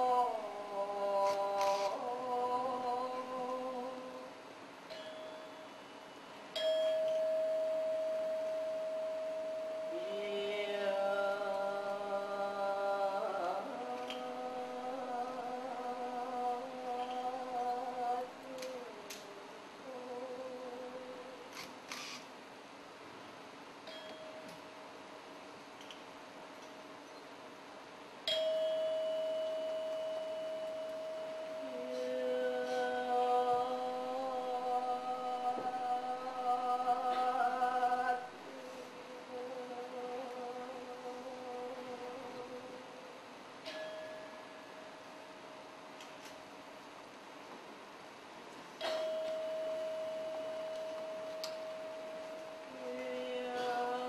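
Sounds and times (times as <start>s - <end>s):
chanting voice: 0.0s - 5.4s, 6.6s - 21.6s, 29.0s - 44.8s, 48.8s - 54.0s
faint steady held tone: 3.9s - 18.5s, 23.8s - 24.8s, 28.2s - 39.3s, 48.8s - 54.0s
metallic bell tone: 4.9s - 5.9s, 6.5s - 10.2s, 23.9s - 24.5s, 28.2s - 32.8s, 43.6s - 45.3s, 48.8s - 53.7s.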